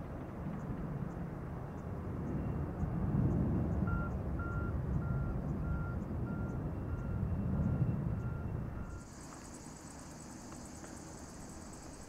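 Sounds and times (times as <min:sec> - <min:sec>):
distant jet engines roaring: 0:00.0 - 0:12.0
vehicle reversing alarm beeping: 0:03.8 - 0:12.0.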